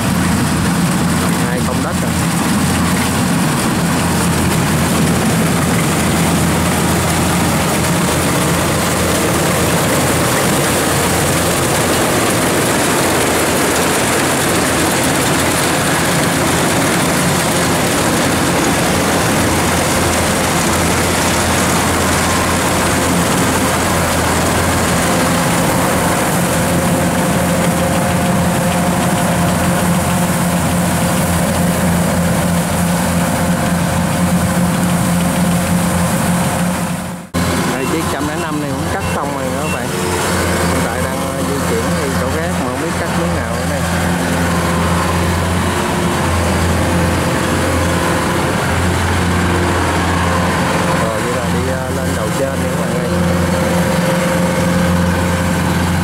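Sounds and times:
combine harvester running: 0.0s - 56.0s.

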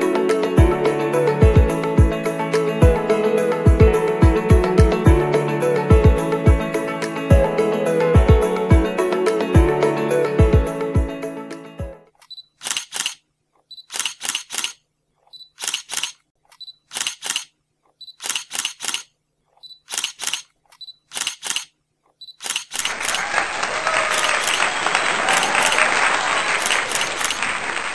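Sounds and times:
camera shutter clicks: 12.3s - 13.2s, 13.8s - 14.8s, 15.5s - 16.2s, 16.9s - 17.5s, 18.1s - 19.1s, 19.8s - 21.7s, 22.4s - 22.9s
applause: 22.9s - 27.9s.

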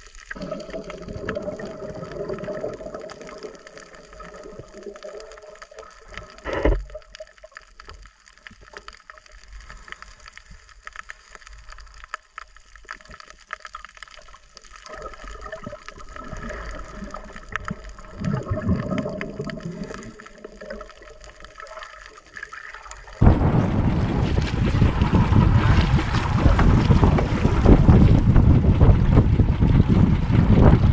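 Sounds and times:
underwater clicks: 0.0s - 23.3s
underwater bubbling: 0.0s - 30.9s
water splashing against boat: 23.0s - 30.9s
wind on microphone: 23.2s - 30.9s.

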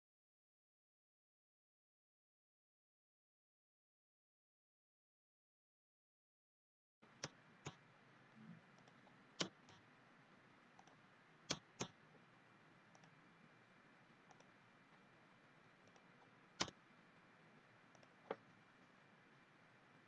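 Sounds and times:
faint steady hiss: 7.0s - 20.0s
computer mouse clicking: 7.1s - 7.8s, 8.7s - 9.9s, 10.8s - 12.2s, 12.9s - 13.2s, 14.2s - 14.6s, 15.8s - 16.8s, 17.9s - 18.6s.

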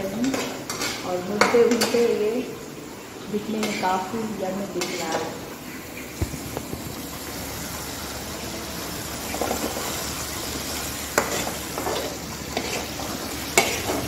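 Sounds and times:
metal spatula scraping a pan: 0.0s - 2.2s, 3.5s - 4.1s, 4.8s - 5.4s, 11.1s - 14.0s
paste sizzling in a pan: 0.0s - 14.0s.

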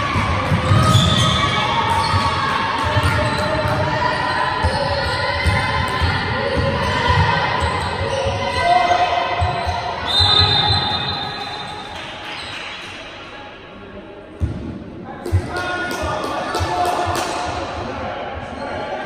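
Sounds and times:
referee whistle: 9.6s - 11.9s.

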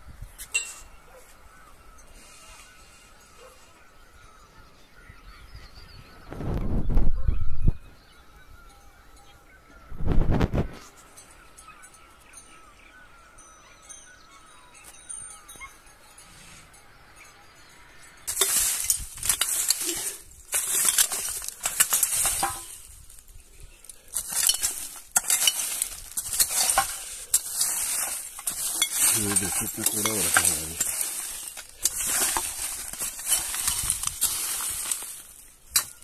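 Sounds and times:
metal rake scraping debris: 18.2s - 36.0s
plastic and debris rustling: 18.3s - 36.0s.

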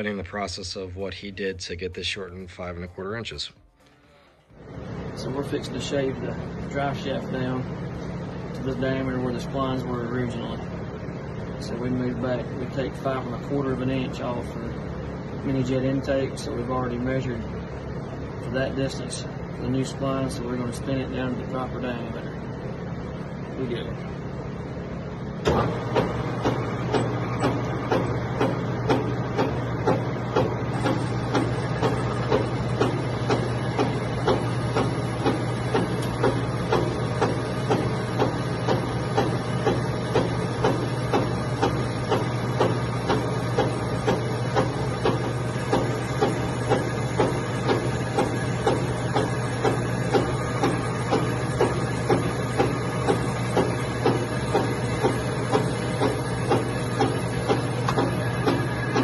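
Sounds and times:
lathe motor humming: 25.5s - 59.0s.

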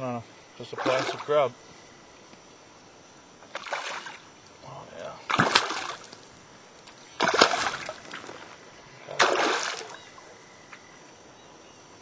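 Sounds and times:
fish splashing at the surface: 0.8s - 1.4s, 3.5s - 4.3s, 5.3s - 6.3s, 7.2s - 8.5s, 9.1s - 10.2s.

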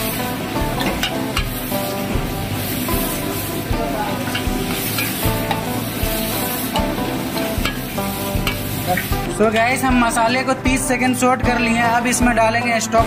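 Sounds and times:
paste sizzling in a pot: 0.0s - 9.9s.

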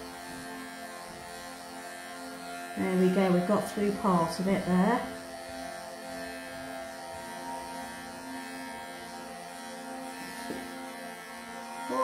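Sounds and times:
electric pet clippers buzzing: 0.0s - 12.0s.

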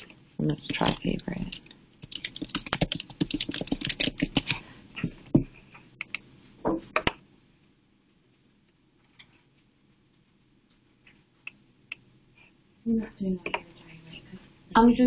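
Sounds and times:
typing on computer keyboard: 0.8s - 4.6s.

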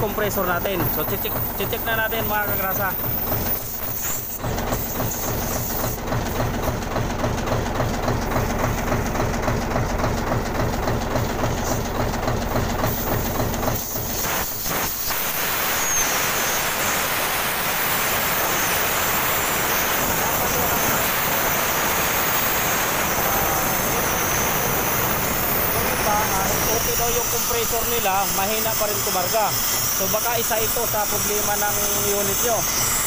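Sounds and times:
diesel truck engine running: 0.0s - 33.0s
compressed air hissing: 12.8s - 32.1s.

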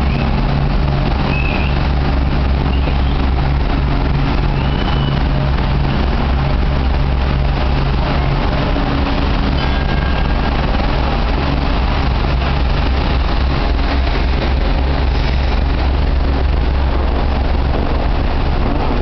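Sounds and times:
diesel engine rumbling: 0.0s - 19.0s.

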